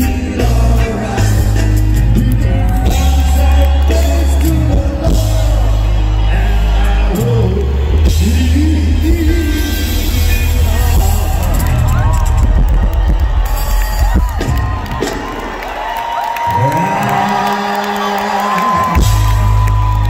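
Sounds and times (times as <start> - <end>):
man singing into microphone: 0.0 - 11.9, 16.5 - 19.6
heavy bass line: 0.0 - 15.0
reggae band playing: 0.0 - 15.6.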